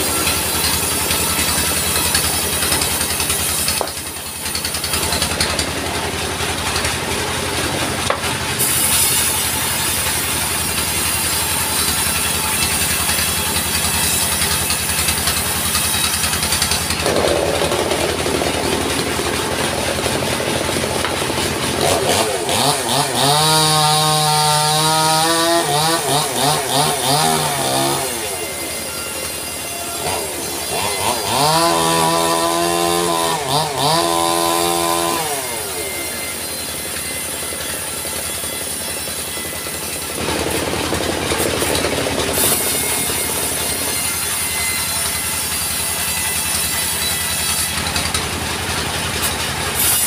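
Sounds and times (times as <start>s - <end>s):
sawmill blade sawing log: 0.0s - 50.0s
sawmill engine running: 0.0s - 50.0s.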